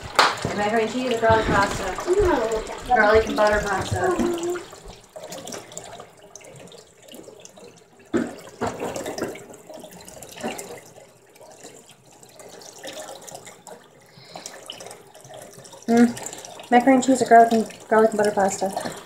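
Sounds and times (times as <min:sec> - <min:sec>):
tap running into sink: 0:00.0 - 0:05.6, 0:08.1 - 0:09.5.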